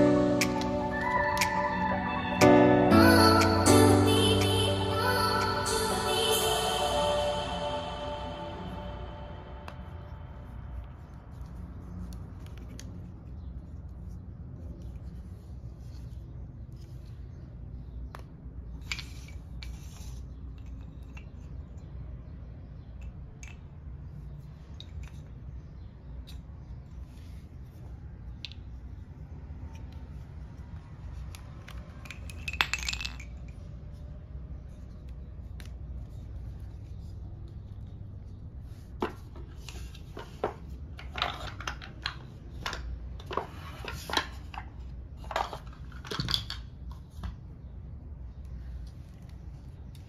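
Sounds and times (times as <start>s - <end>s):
toy pieces knocking and clicking: 31.1s - 33.6s, 39.0s - 47.3s.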